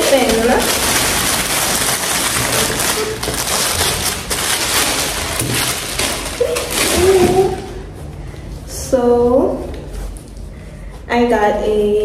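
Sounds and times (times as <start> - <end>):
packaging wrap crinkling: 0.0 - 8.0.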